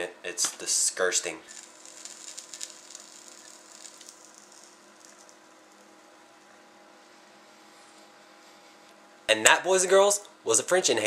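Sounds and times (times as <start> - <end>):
low steady hum: 0.0 - 11.0
burning crackle and hiss: 1.2 - 9.0.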